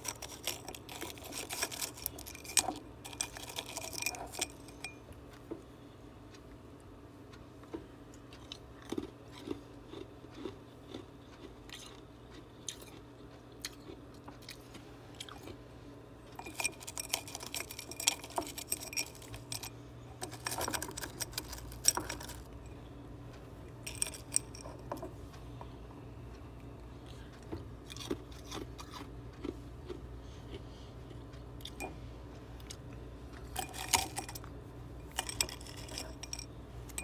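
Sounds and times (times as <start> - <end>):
frost crunching between teeth: 0.0 - 4.6.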